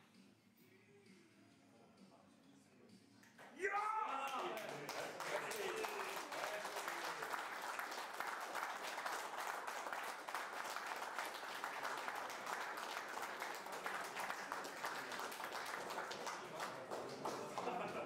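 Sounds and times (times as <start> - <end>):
people clapping: 3.2 - 18.0.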